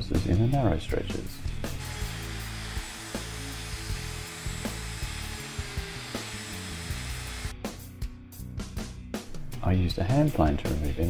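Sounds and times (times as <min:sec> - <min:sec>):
router cutting wood: 0:01.7 - 0:07.5.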